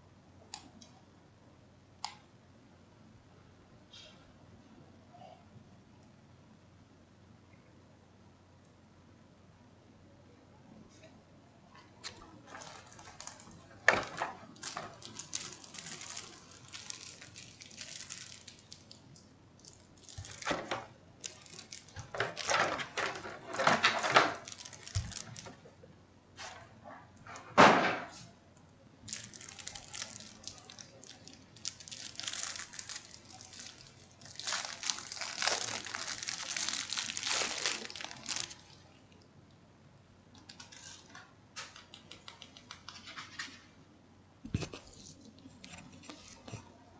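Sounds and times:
plastic packaging crinkling: 12.0 - 25.6, 29.0 - 38.8, 40.4 - 41.2.

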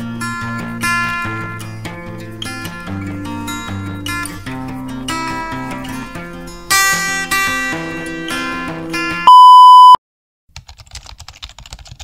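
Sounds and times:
strummed acoustic guitar: 0.0 - 9.2
loud steady beep tone: 9.3 - 10.0
typing on a keyboard: 10.5 - 12.0.

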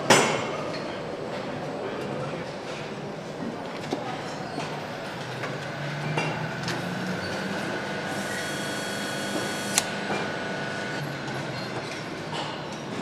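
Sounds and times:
machinery hum: 4.6 - 13.0
sharp click: 9.7 - 9.9.

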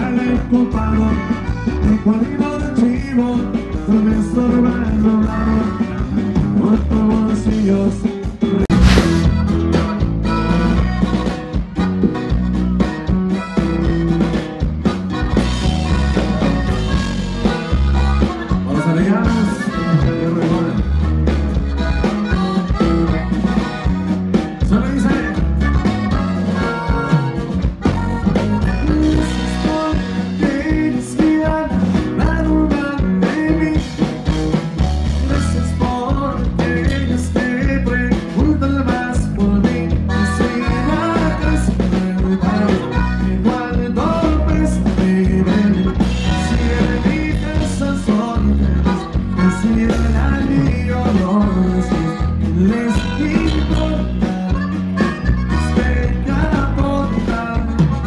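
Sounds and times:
live band through pa: 0.0 - 58.0
person singing: 35.3 - 58.0.

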